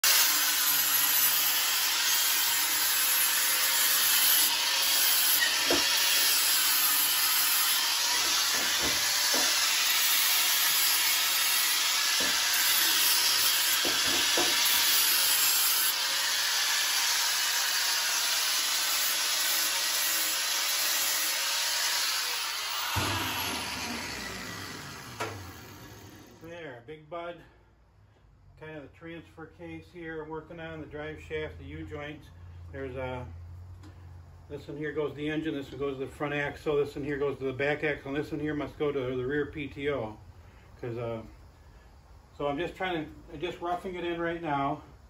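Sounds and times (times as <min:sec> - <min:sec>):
angle grinder grinding steel: 0:00.0 - 0:26.5.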